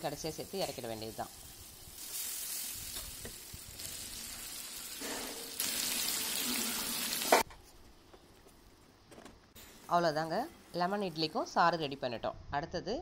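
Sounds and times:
oil sizzling and bubbling in a pan: 0.0s - 7.5s.

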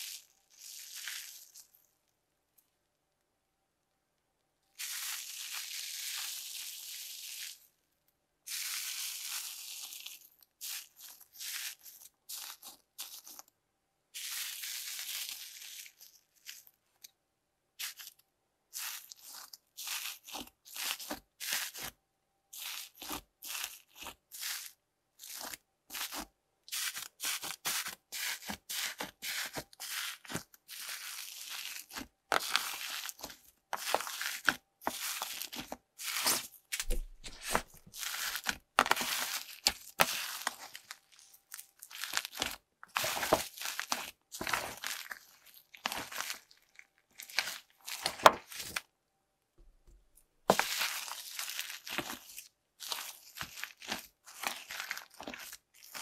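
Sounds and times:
crunchy slime squished by hand: 4.8s - 7.6s, 8.5s - 13.5s, 14.1s - 16.7s, 17.8s - 48.8s, 50.4s - 56.0s.

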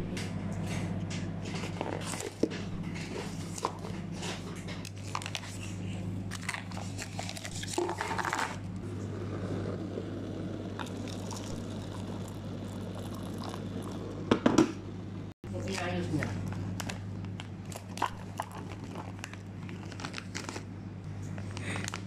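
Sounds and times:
plastic packaging rustling: 3.1s - 8.6s, 16.1s - 20.7s
water pouring into cup: 10.8s - 14.3s.

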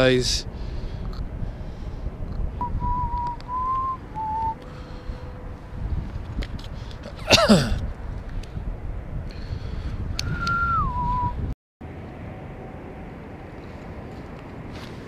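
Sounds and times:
low rumble: 0.0s - 14.9s
man whistling: 2.6s - 4.7s, 10.2s - 11.4s.

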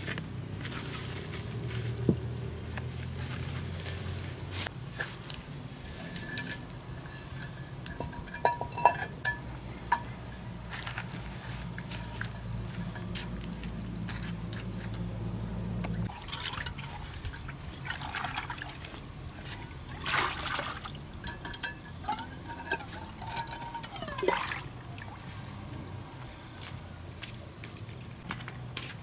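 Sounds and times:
pot clinking: 5.8s - 10.2s, 16.1s - 25.0s
water splashing and trickling: 16.0s - 25.8s.

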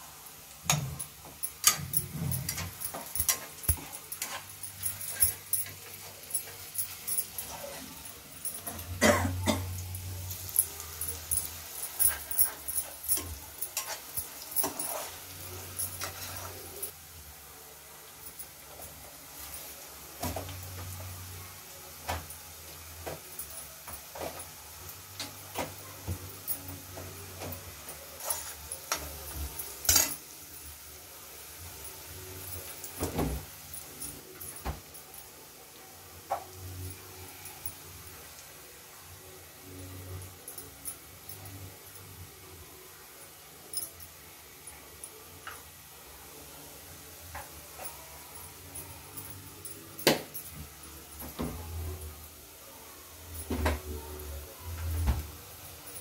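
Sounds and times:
faint steady hiss: 0.0s - 56.0s
metal utensils clattering: 0.6s - 16.9s, 26.4s - 30.3s
steel dishes clinking: 0.7s - 16.9s, 28.2s - 30.2s.

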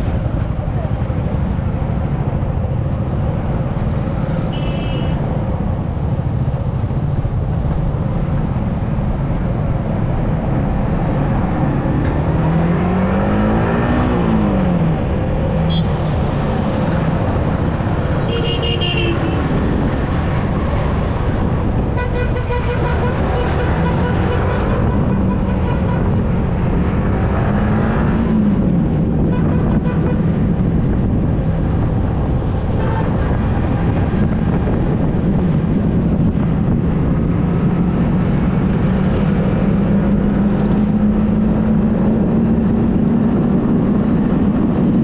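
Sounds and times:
road and wind noise: 0.0s - 45.0s
vehicle horn toots: 4.5s - 5.2s, 15.7s - 16.1s, 18.3s - 19.4s.

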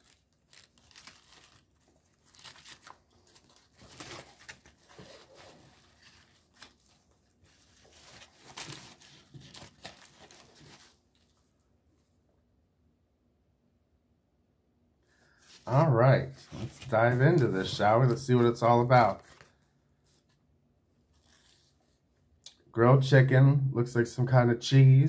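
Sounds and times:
paper wrappers crinkling and tearing: 0.0s - 11.4s, 16.4s - 19.7s.

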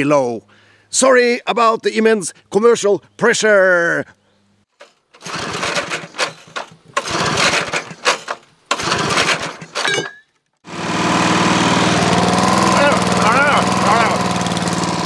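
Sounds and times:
recoil starter cord pulls: 4.7s - 9.9s, 11.8s - 15.0s
lawnmower engine running: 4.8s - 9.8s, 10.6s - 15.0s.

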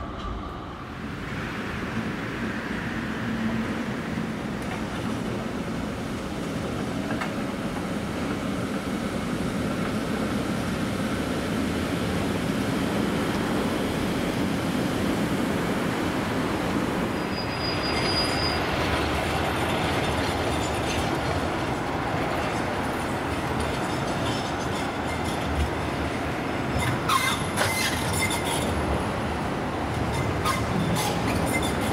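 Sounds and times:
tram rail rumble: 0.0s - 31.9s
high-pitched wheel squeal: 17.2s - 18.7s, 26.8s - 28.7s.

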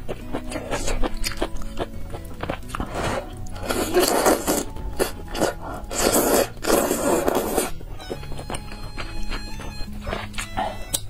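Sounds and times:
background music: 0.0s - 11.0s
noodles slurped: 2.5s - 7.8s
wet chewing and lip smacks: 7.4s - 11.0s.

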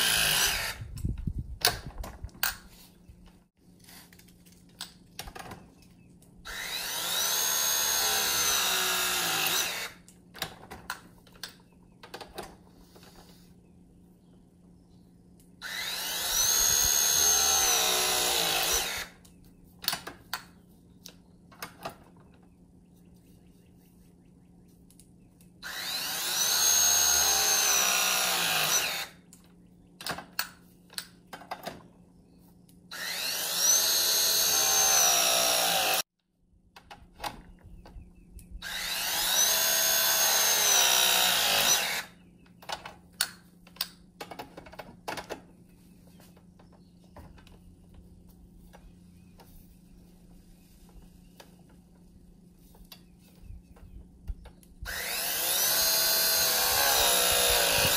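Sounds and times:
press tool motor whine: 54.9s - 57.9s.

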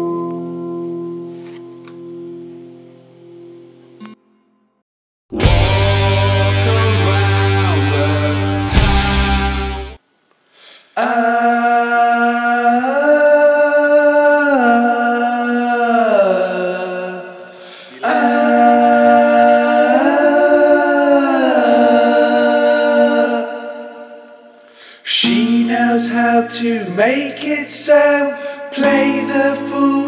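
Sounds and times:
music of long held chords: 5.4s - 10.0s.

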